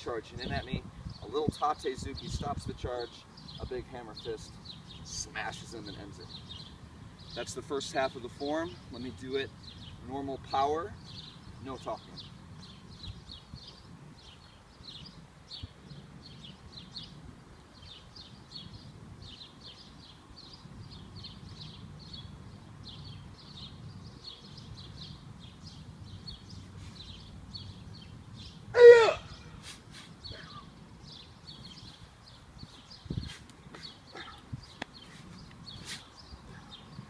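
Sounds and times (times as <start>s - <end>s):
person shouting: 28.8s - 29.3s.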